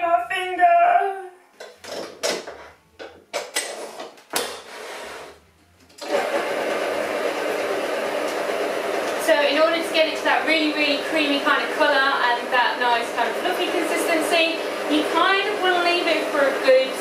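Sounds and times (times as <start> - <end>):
mixer head clicking and knocking: 1.6 - 4.6
stand mixer motor running: 6.0 - 17.0.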